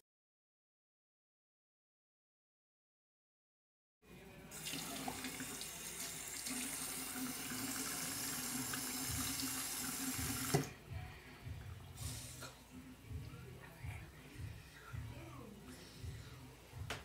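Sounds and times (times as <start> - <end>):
tap water running into sink: 4.5 - 10.8.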